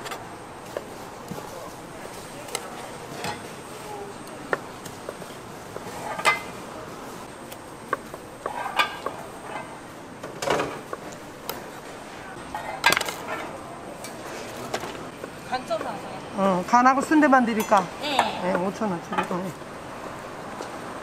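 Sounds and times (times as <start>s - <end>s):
steady background noise: 0.0s - 21.0s
dishes and utensils clinking: 5.8s - 6.6s, 8.4s - 9.8s.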